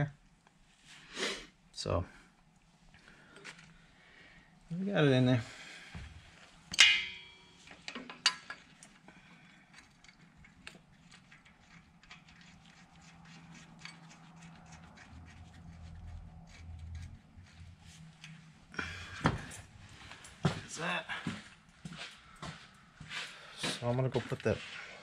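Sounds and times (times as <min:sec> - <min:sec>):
metal tools clinking: 0:06.7 - 0:08.8.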